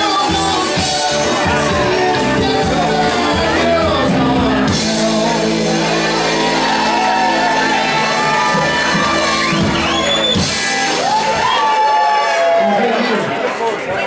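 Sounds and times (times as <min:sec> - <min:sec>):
person singing: 0:00.0 - 0:09.8
bass guitar: 0:00.0 - 0:11.6
drums and cymbals: 0:00.0 - 0:11.6
electric guitar: 0:00.0 - 0:14.0.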